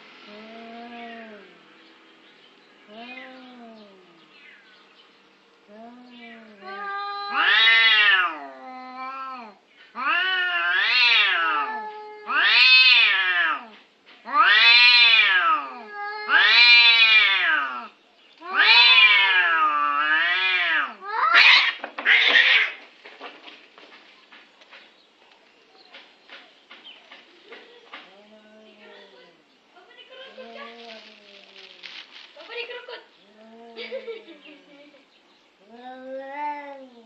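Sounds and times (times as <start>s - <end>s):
cats yowling: 6.1s - 22.8s, 35.6s - 37.0s
cats fighting outburst: 6.2s - 23.6s.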